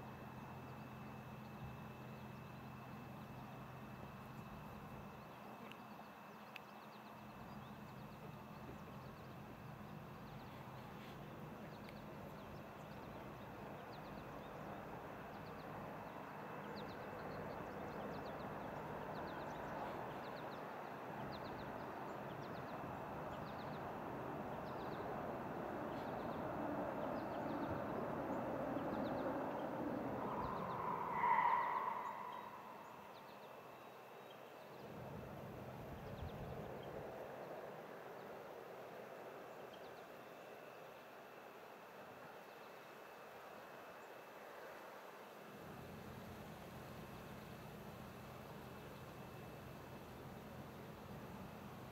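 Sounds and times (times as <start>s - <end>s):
vehicle passing: 25.2s - 33.2s.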